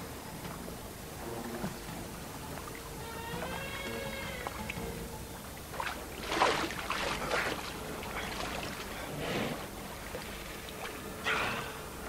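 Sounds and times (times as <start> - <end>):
sea water splashing around swimmer: 5.7 - 11.8.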